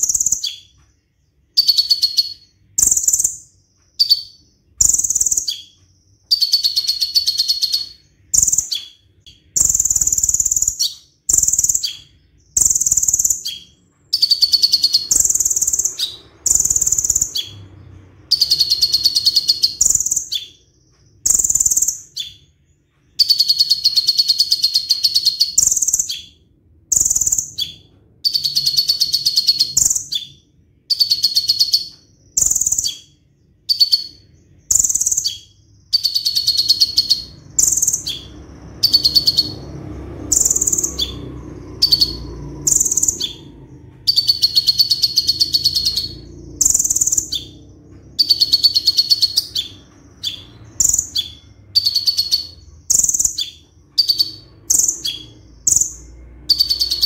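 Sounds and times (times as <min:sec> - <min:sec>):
bird singing fast trills: 0:00.0 - 0:57.0.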